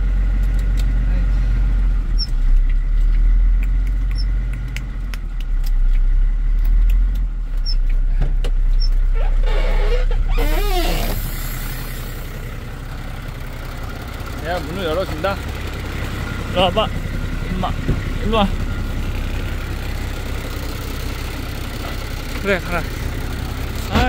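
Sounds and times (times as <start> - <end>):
truck engine idling: 0.0 - 24.0
wavering pitched sound of door: 9.4 - 12.1.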